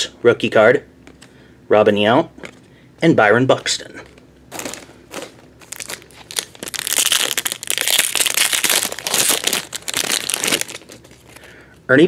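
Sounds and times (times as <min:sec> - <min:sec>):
card pack wrapper crinkling: 0:04.5 - 0:11.5.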